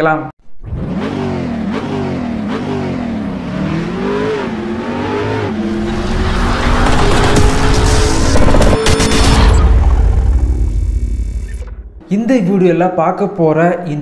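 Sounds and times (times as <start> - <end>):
car engine revving: 0.6 - 12.0
rushing noise: 4.6 - 12.0.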